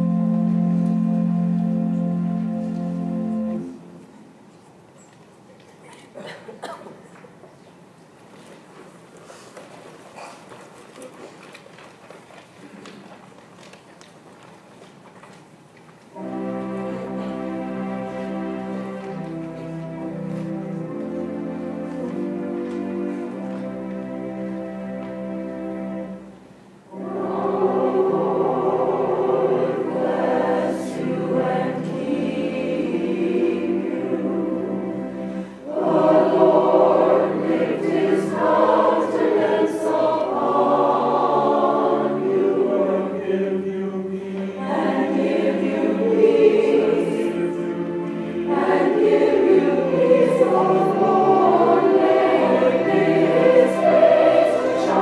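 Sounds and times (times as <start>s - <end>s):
church choir singing: 0.0s - 4.4s, 16.1s - 26.3s, 26.9s - 55.0s.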